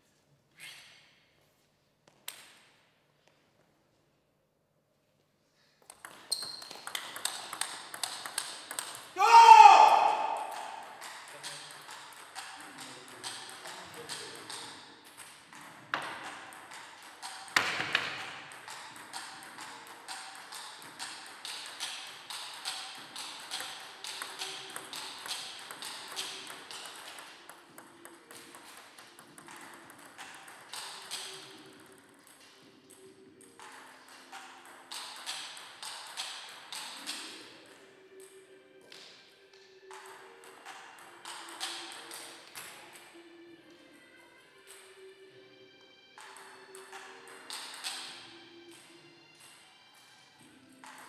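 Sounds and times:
table tennis balls clicking: 5.8 - 9.2, 10.1 - 37.4, 39.9 - 42.8, 46.2 - 48.2.

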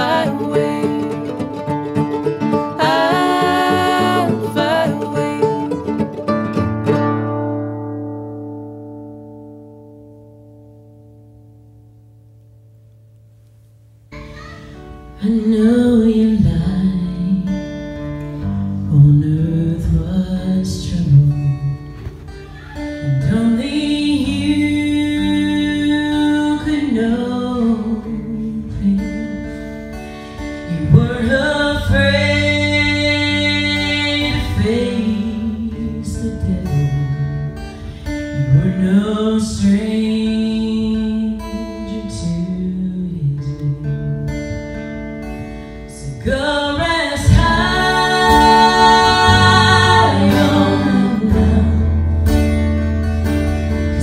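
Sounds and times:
person singing: 0.0 - 6.5, 22.4 - 29.6, 30.7 - 37.5, 45.9 - 52.0
acoustic guitar: 0.0 - 54.0.

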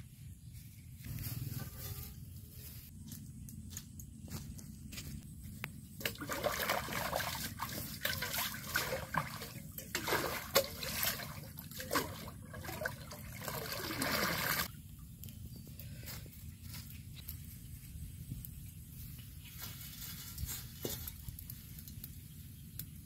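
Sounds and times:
water splashing by hand: 6.0 - 14.7
water pouring into pond: 6.0 - 14.9.

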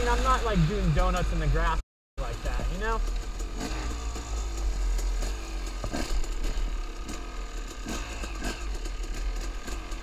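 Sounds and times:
motorcycle engine running: 0.0 - 10.0
motorcycle rattling over bumps: 2.2 - 10.0.

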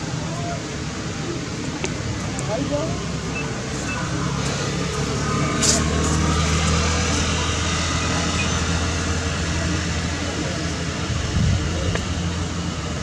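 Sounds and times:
engine humming: 0.0 - 13.0.

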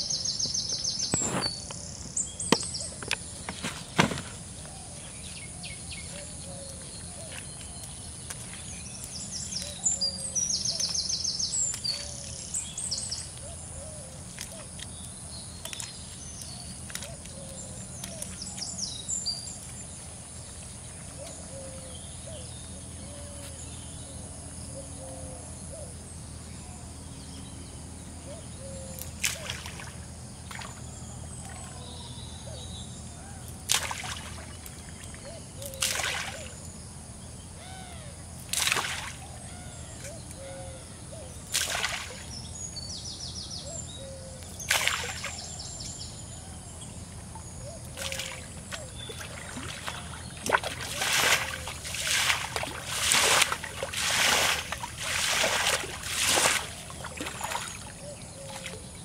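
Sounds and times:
water splashing: 33.7 - 35.2, 38.5 - 39.2, 41.5 - 42.3, 44.6 - 45.4, 47.3 - 58.8.

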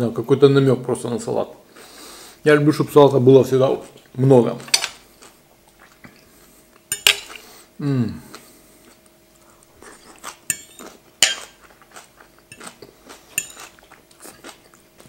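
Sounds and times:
cutlery clinking on a plate: 4.7 - 5.0, 6.9 - 7.4, 10.5 - 11.6, 13.4 - 13.8.

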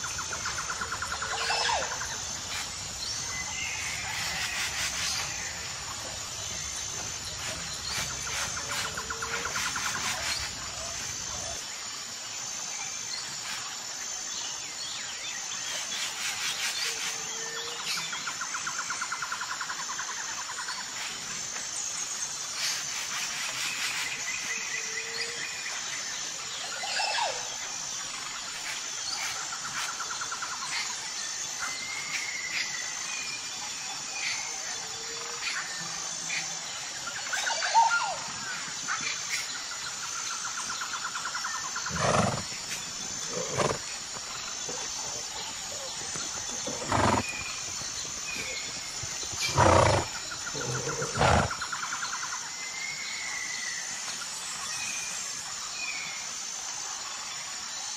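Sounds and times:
high insect trill: 0.0 - 57.9
birds chirping: 40.6 - 51.9.

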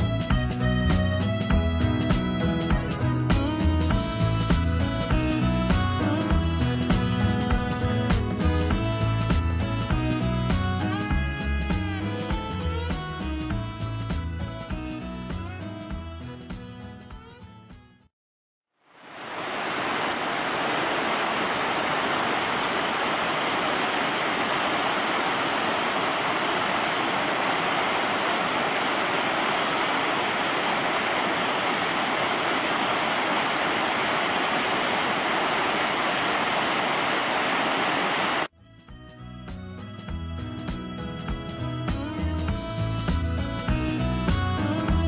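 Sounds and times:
stream rushing over rocks: 18.9 - 38.5.

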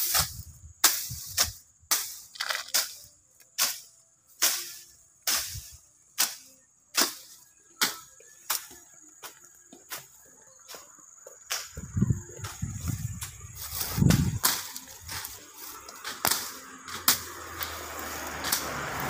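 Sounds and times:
machete slashing through brush: 0.0 - 8.8, 12.5 - 19.0
rustle of cut stems: 0.0 - 19.0.

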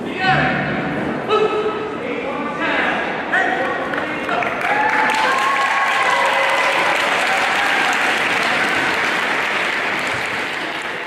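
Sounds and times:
audience applauding: 4.3 - 11.0.

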